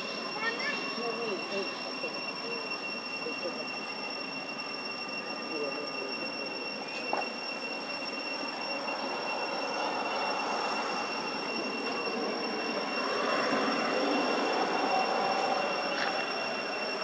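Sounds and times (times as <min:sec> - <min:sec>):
high-pitched whine: 0:00.0 - 0:17.0
outdoor background noise: 0:00.0 - 0:17.0.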